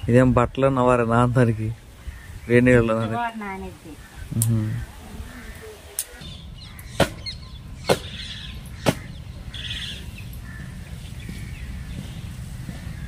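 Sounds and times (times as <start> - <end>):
small birds chirping: 0.0 - 13.0
sharp knocks: 7.0 - 7.2, 8.8 - 9.1.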